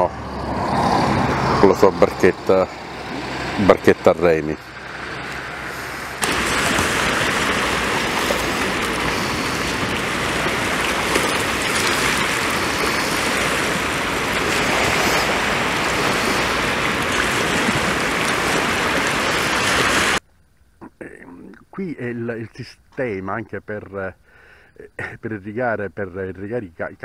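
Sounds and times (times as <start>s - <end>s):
rushing water: 0.0s - 20.2s.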